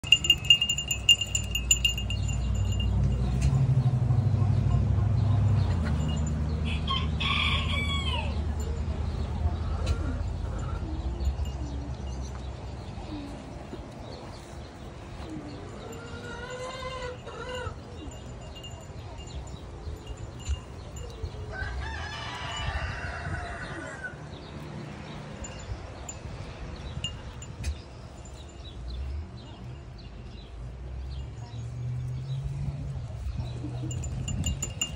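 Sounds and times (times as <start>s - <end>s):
small bell jingling: 0.0s - 3.6s, 5.5s - 6.7s, 15.7s - 21.7s, 25.2s - 29.3s, 33.6s - 34.9s
light metallic chime notes: 0.0s - 3.8s.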